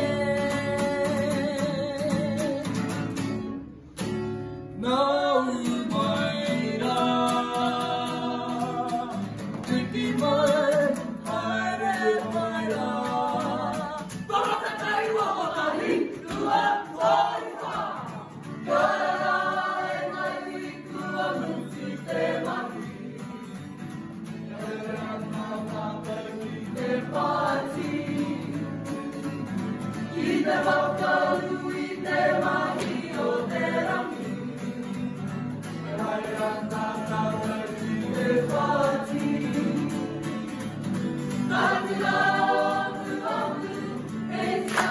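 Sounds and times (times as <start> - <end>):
group of young people singing: 0.0 - 3.1, 4.8 - 44.9
strummed acoustic guitar: 0.0 - 44.9.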